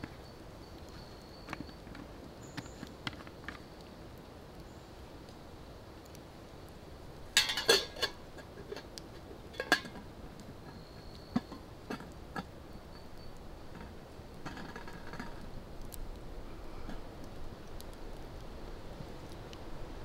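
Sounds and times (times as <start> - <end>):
metal pot clinking and knocking: 7.4 - 8.2, 9.5 - 10.0.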